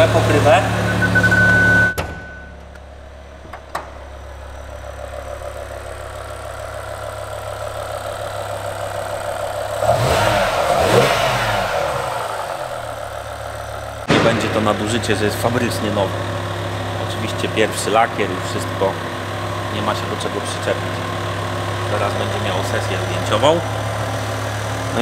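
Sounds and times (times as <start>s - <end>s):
car engine idling and revving: 0.0s - 25.0s
high beep: 0.7s - 2.6s.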